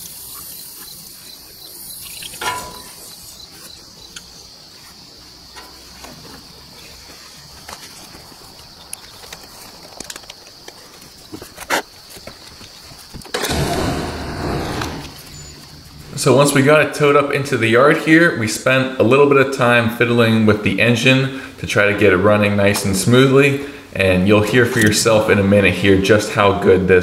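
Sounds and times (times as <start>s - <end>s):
high insect drone: 0.0s - 21.5s.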